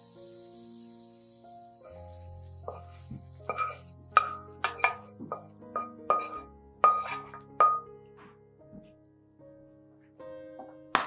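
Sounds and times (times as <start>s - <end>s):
soft background music: 0.0s - 11.0s
pan clinking against ceramic bowl: 3.5s - 7.9s.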